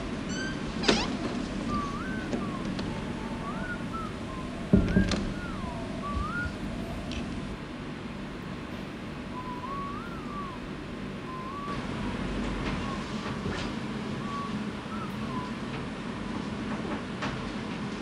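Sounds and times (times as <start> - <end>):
steady low rumble: 1.2 - 14.3
person whistling a tune: 1.7 - 6.7, 9.3 - 12.1, 12.7 - 13.3, 14.2 - 15.6.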